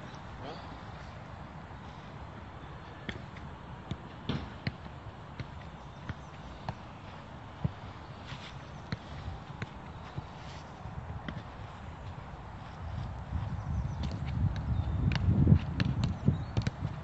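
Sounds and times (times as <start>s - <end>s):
footballs being struck and bouncing: 3.0s - 17.0s
footsteps on artificial turf: 6.1s - 14.5s.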